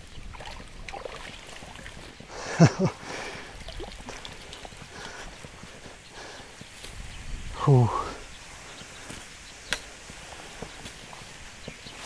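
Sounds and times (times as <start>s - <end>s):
fish splashing in water: 0.0s - 2.2s, 3.1s - 5.5s.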